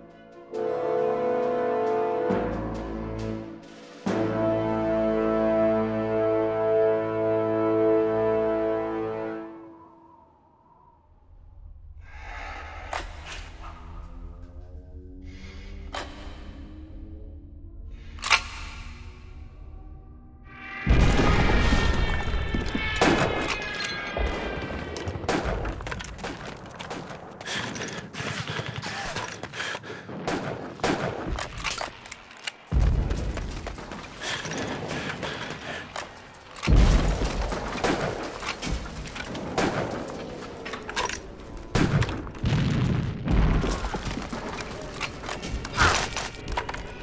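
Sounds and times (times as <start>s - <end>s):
heavy explosion booms: 20.9s - 23.2s, 41.7s - 44.3s.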